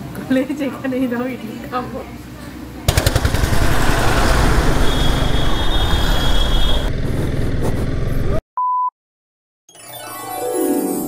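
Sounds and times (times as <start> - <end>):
motorcycle engine rumble: 2.9 - 8.4.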